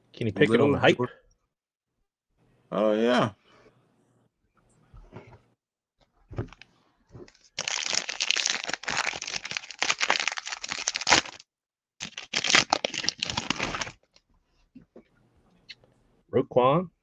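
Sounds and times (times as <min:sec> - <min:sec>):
foil wrapper crinkling: 0:07.3 - 0:14.2.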